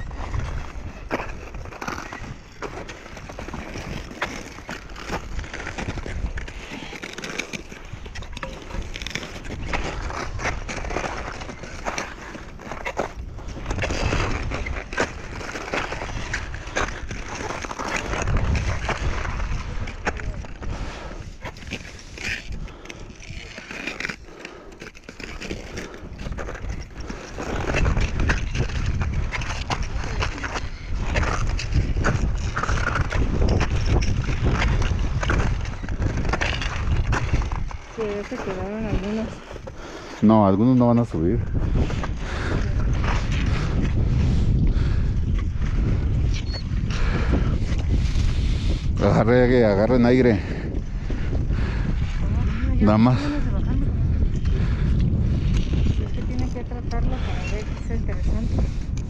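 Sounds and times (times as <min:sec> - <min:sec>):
wind rumble on microphone: 0:00.0 - 0:59.0
crampon footsteps crunching on ice: 0:21.5 - 0:40.0.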